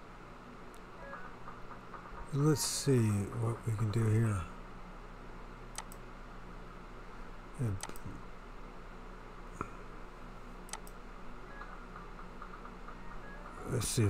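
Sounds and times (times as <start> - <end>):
low electrical hum: 0.0 - 14.0
computer mouse clicks: 5.7 - 6.0, 7.8 - 8.1, 10.7 - 11.0.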